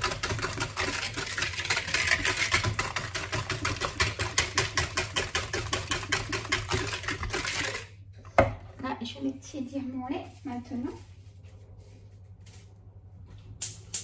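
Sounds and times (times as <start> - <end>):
whisk clattering in a bowl: 0.0 - 7.9.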